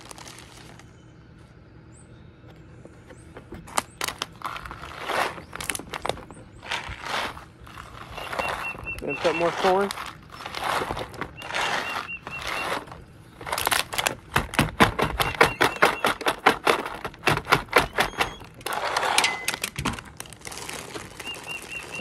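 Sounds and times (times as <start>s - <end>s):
corn swishing in bottle: 6.6s - 13.0s.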